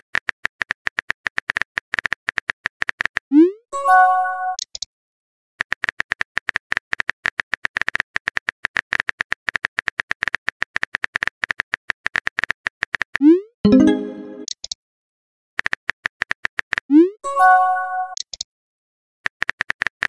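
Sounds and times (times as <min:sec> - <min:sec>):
message sent chime: 0:13.7 - 0:14.5, 0:17.3 - 0:18.2
keyboard typing clicks: 0:18.1 - 0:18.5.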